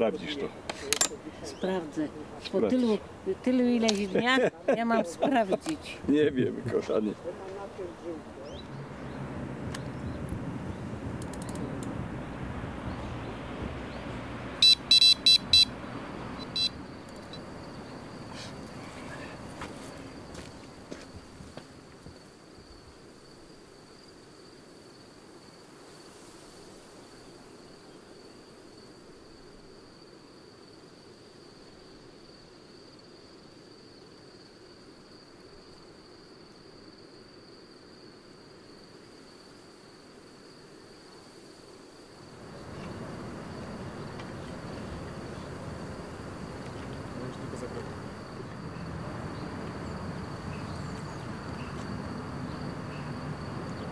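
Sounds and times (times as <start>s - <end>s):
even hiss: 0.0s - 31.5s, 38.0s - 53.9s
bite alarm beeping: 14.6s - 15.8s, 16.4s - 17.4s.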